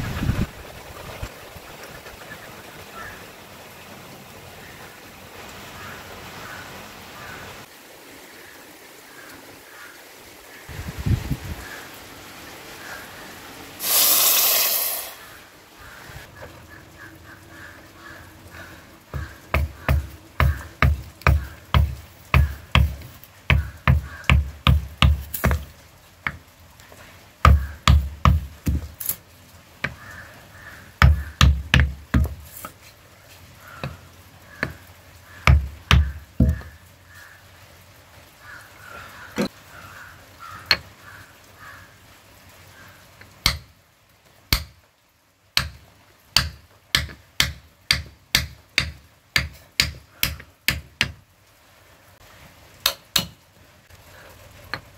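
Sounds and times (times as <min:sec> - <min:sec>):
heavy dull knocks on wood: 0:19.1 - 0:25.7, 0:27.5 - 0:28.9, 0:31.0 - 0:32.4, 0:35.4 - 0:36.7.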